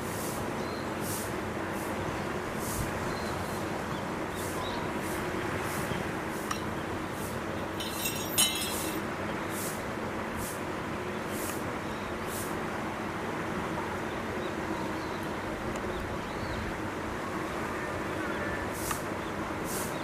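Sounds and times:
steady background noise: 0:00.0 - 0:20.0
ringing clink and rattle: 0:07.8 - 0:09.0.

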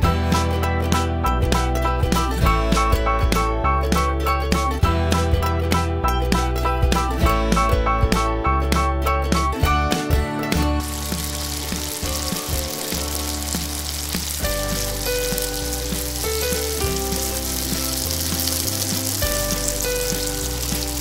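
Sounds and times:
background music with bass: 0:00.0 - 0:21.0
food deep-frying in oil: 0:10.8 - 0:21.0.

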